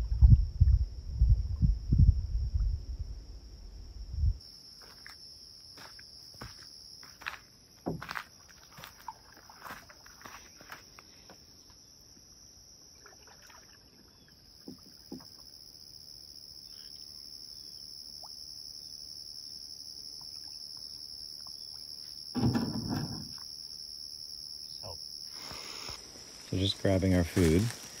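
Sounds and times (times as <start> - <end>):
insects droning: 0.0 - 28.0
low thump or rustle: 22.4 - 23.4.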